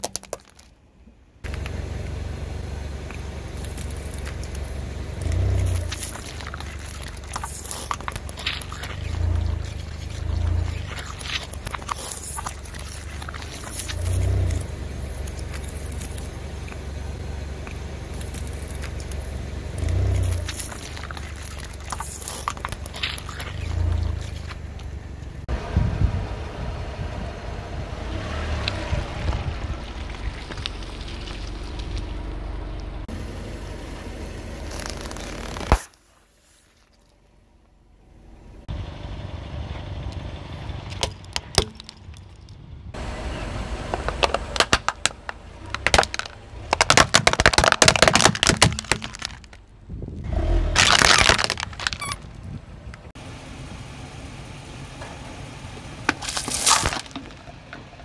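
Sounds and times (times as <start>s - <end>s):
plastic cracking under tyre: 0.0s - 0.8s, 3.0s - 16.9s, 17.6s - 25.0s, 28.6s - 32.2s, 34.6s - 36.0s, 43.9s - 49.7s, 50.8s - 53.1s, 56.1s - 57.8s
low engine rumble: 0.0s - 58.0s.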